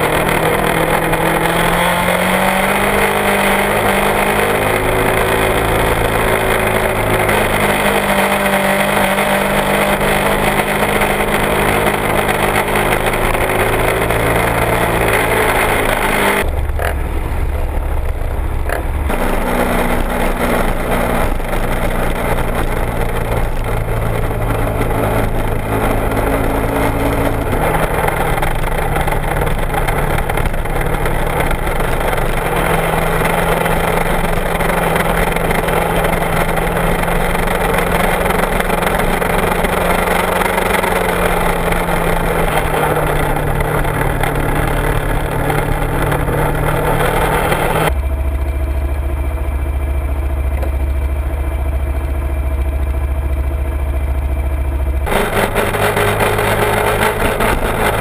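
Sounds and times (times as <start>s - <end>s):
motorcycle engine riding: 0.0s - 58.0s
motorcycle engine idling: 16.4s - 19.2s, 47.9s - 58.0s.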